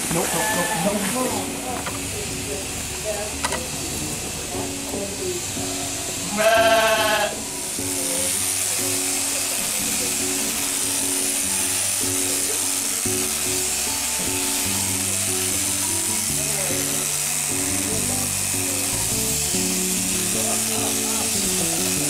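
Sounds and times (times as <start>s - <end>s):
background music: 0.0s - 22.0s
electric clippers buzzing: 0.0s - 22.0s
sheep bleating: 0.1s - 1.2s, 6.2s - 7.4s.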